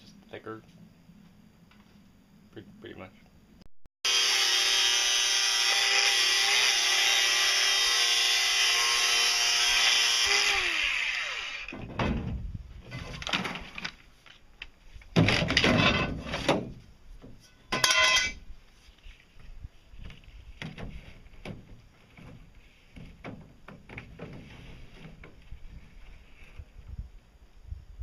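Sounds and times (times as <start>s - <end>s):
angle grinder whining: 4.0s - 11.8s
plastic pipe knocking and scraping: 20.0s - 25.5s.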